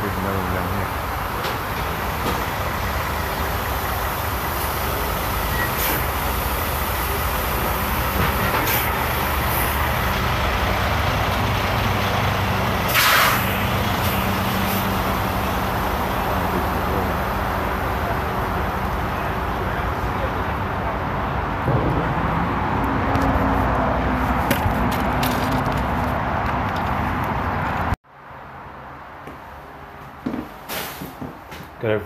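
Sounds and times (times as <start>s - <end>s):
truck diesel engine running: 0.0s - 28.0s
air brake hissing: 4.4s - 7.2s, 8.4s - 9.8s, 12.9s - 15.0s, 30.7s - 31.2s.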